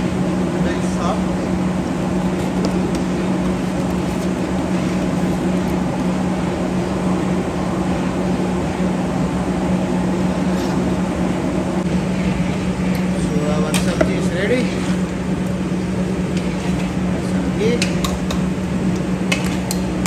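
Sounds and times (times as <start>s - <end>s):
kitchen machine hum: 0.0s - 20.0s.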